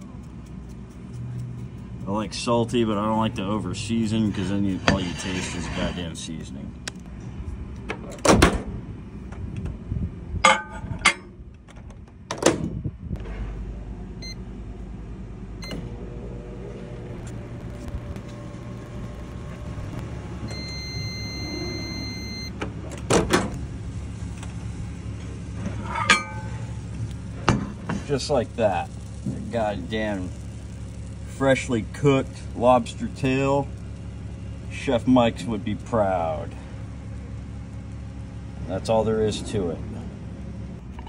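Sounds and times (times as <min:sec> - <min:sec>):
microwave humming: 0:13.2 - 0:34.8
microwave beep: 0:14.2 - 0:14.4, 0:15.6 - 0:16.0, 0:20.0 - 0:22.6.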